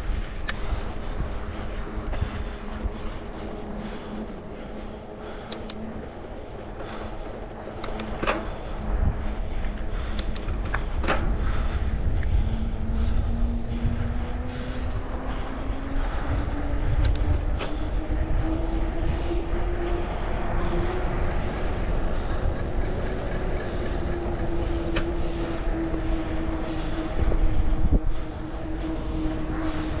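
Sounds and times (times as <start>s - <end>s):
wind rumble on microphone: 0.0s - 30.0s
sharp clicks: 5.4s - 5.9s, 7.7s - 8.5s, 10.1s - 10.8s, 17.0s - 17.3s.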